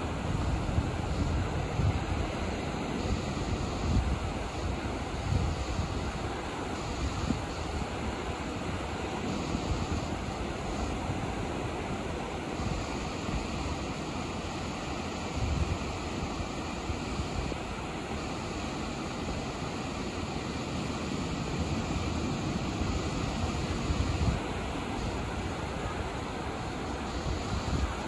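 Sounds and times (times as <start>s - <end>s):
wind buffeting microphone: 21.6s - 25.6s.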